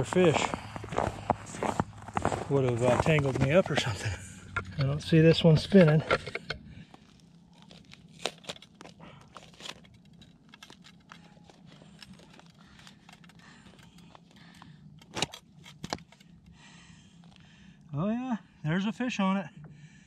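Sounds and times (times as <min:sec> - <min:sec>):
footsteps crunching on snow: 0:00.0 - 0:04.3.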